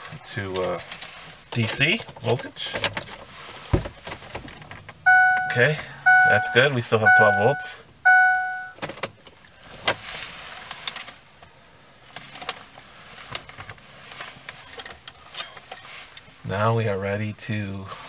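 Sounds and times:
short electronic beep: 5.1s - 8.8s.

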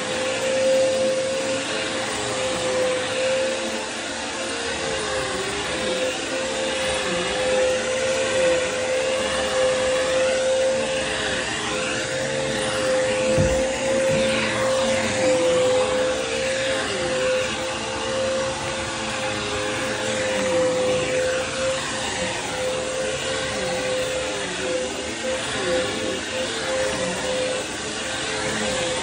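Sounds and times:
vacuum cleaner humming on carpet: 0.0s - 29.0s.

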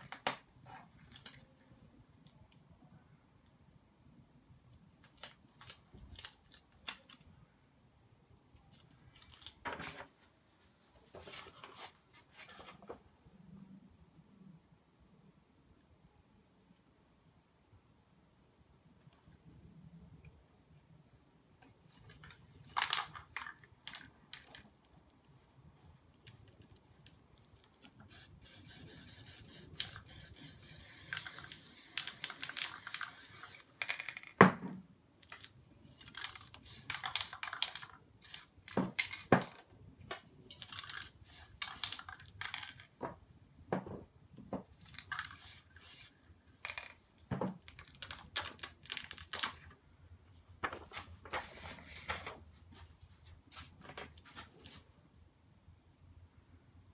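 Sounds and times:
spray paint can hissing: 28.1s - 33.8s, 36.3s - 38.6s, 41.2s - 42.1s, 45.1s - 46.1s.

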